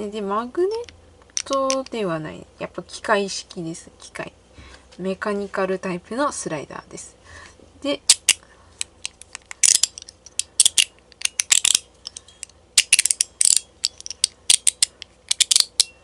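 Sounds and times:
fidget toy metallic clicks: 8.1 - 16.0.

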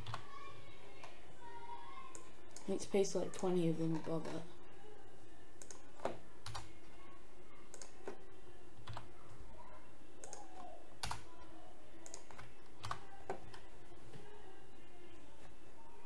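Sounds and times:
keyboard keys clicking: 12.0 - 13.0.

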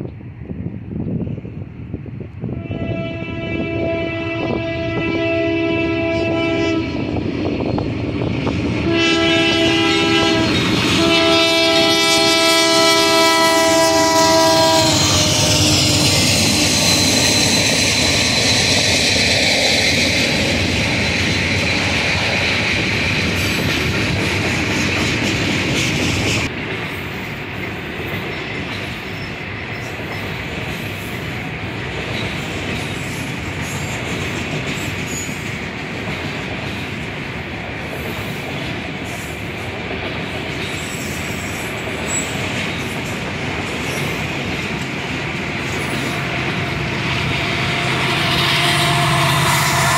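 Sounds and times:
train air horn blasts: 2.5 - 7.1, 8.8 - 17.8, 45.8 - 49.9
freight train wheels clacking: 6.1 - 49.9
high wheel squeal: 13.5 - 23.8, 40.6 - 44.3, 45.6 - 49.9.

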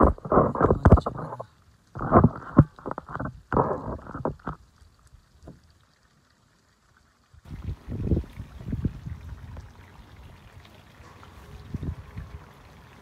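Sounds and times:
wind buffeting microphone: 7.5 - 10.4, 11.6 - 12.5.

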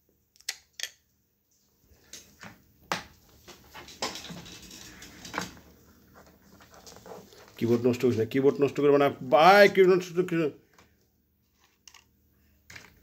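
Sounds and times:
scraping rustle: 3.4 - 8.2.

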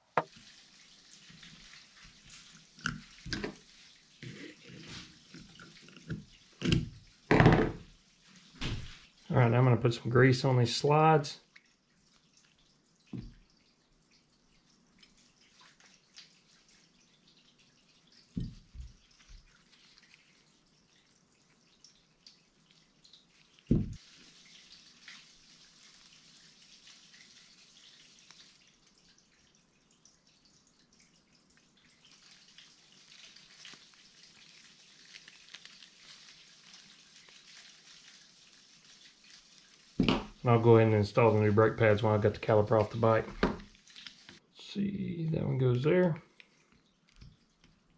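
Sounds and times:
soft rubbing hiss: 0.1 - 6.2, 14.5 - 29.0, 32.0 - 44.4.

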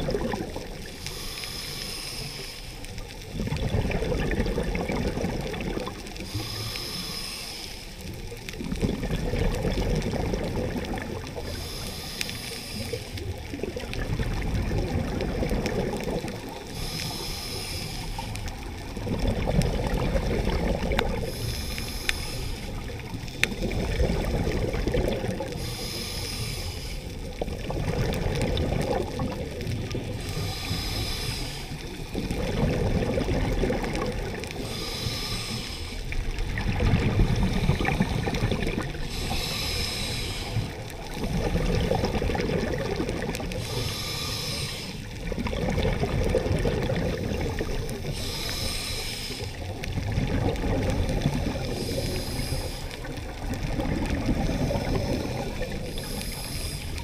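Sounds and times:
rush of exhaled bubbles: 0.0 - 1.1, 3.2 - 7.0, 8.0 - 11.9, 12.7 - 17.2, 17.8 - 57.0
regulator hissing inhale: 0.8 - 3.1, 6.2 - 8.3, 11.2 - 13.4, 16.3 - 19.0, 20.4 - 24.7, 25.3 - 27.6, 29.8 - 32.7, 34.3 - 36.7, 37.3 - 41.2, 43.5 - 45.4, 46.9 - 53.5, 54.1 - 57.0.

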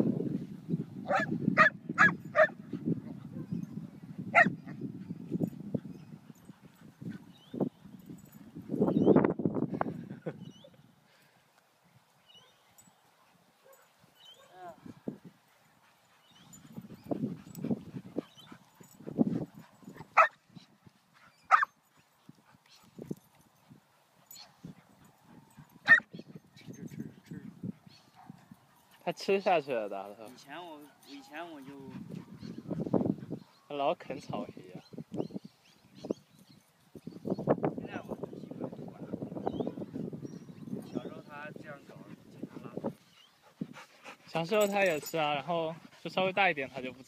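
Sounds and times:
dog barking: 1.1 - 2.6, 4.3 - 4.6, 20.2 - 20.4, 21.5 - 21.7, 25.8 - 26.1
dog yips: 21.5 - 21.7, 25.9 - 26.1.

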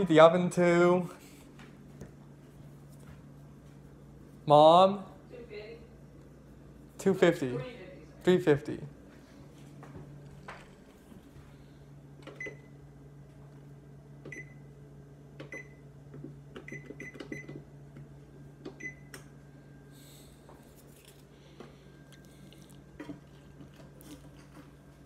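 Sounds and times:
steady low hum: 0.0 - 25.0
oven control panel beeps: 12.2 - 12.8, 14.2 - 14.7, 15.4 - 15.9, 16.6 - 17.7, 18.7 - 19.3.

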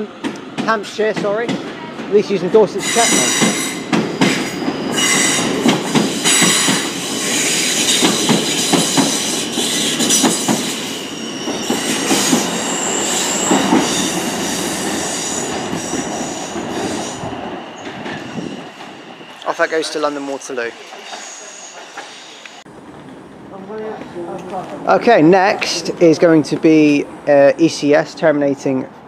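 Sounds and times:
train wheels clicking over rail joints: 0.2 - 12.6
electric train whine: 2.7 - 23.5.

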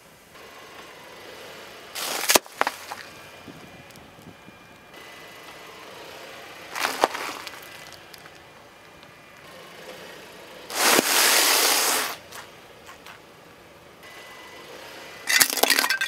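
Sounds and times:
tyre crushing snack wrappers: 2.0 - 3.1, 6.7 - 8.4.

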